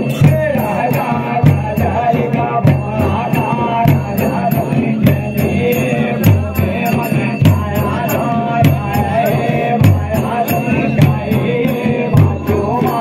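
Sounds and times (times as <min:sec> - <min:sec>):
deep drum beats: 0:00.0 - 0:13.0.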